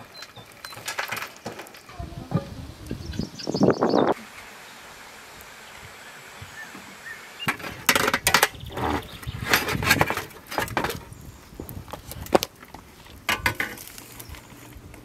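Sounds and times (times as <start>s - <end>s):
coals shifting: 0.0s - 15.0s
metal spatula scraping grill pan: 7.5s - 11.0s, 13.3s - 14.3s.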